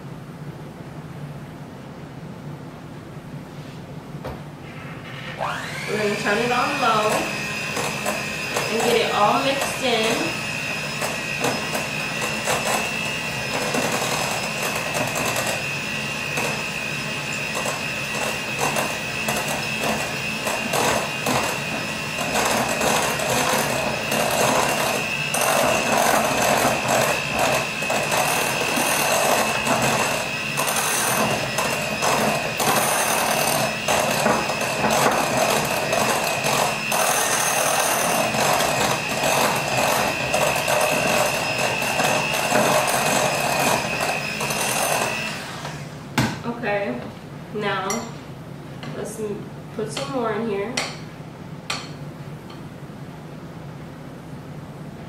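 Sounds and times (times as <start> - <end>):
electric hand mixer whirring: 5.2 - 46.0.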